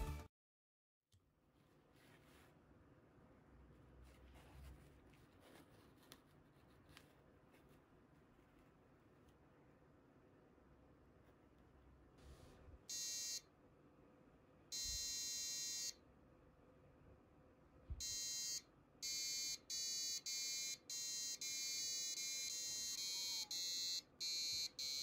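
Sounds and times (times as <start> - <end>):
electronic buzzer notes: 12.9 - 13.4, 14.8 - 16.0, 18.0 - 25.0.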